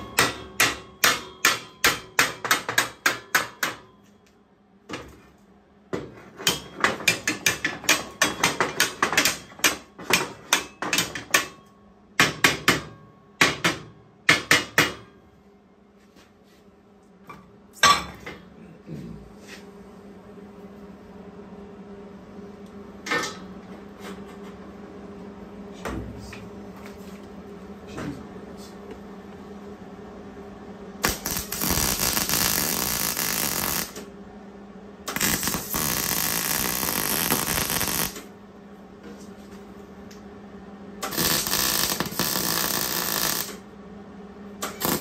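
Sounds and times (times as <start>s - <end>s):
hammer striking steel: 0.0s - 4.1s, 6.4s - 15.2s.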